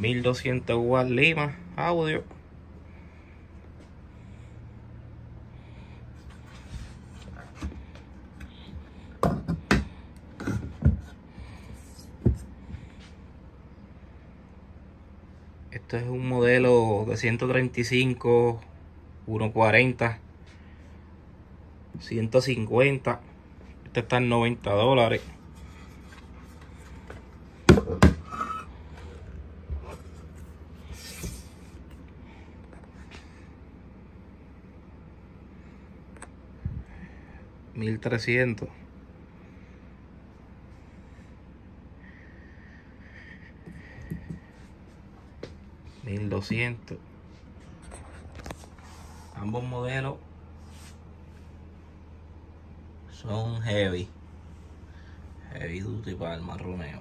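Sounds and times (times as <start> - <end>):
faint low hum: 0.0 - 57.0.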